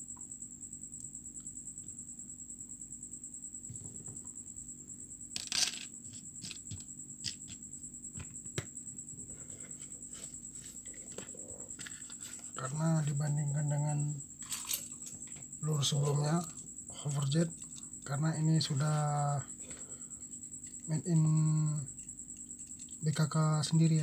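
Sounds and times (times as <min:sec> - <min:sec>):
metal rings rattling: 0:14.4 - 0:15.2.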